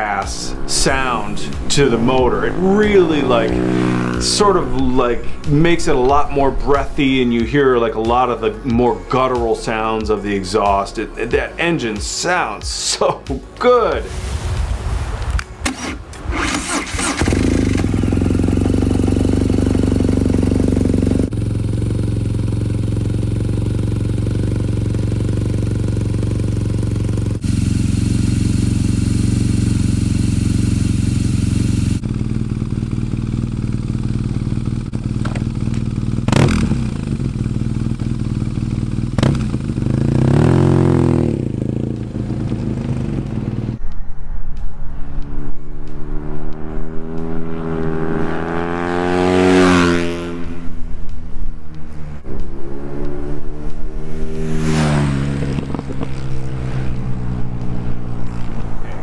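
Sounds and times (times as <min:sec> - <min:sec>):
motorcycle engine revving: 0:00.0 - 0:09.3, 0:15.7 - 0:44.0, 0:44.8 - 0:59.0
engine clatter: 0:16.3 - 0:43.8
motorcycle engine idling: 0:16.4 - 0:43.8.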